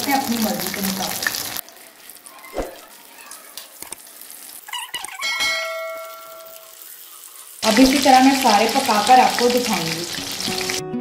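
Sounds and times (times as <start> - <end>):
spatula clinking on metal pan: 5.2 - 6.7
metallic ring: 5.3 - 6.7
faint sizzling: 6.0 - 10.8.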